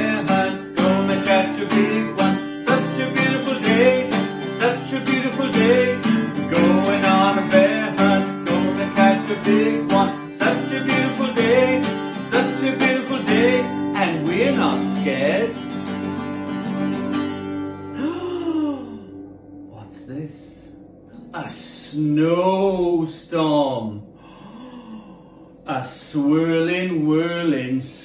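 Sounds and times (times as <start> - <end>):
man singing: 0.0 - 15.6, 25.7 - 28.0
acoustic guitar strumming: 0.0 - 24.7.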